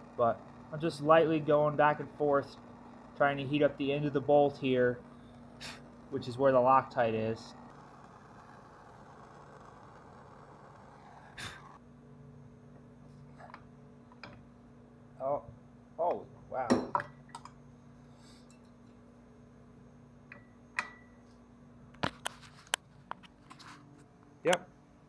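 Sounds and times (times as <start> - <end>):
propane torch hissing: 0.0 - 11.8.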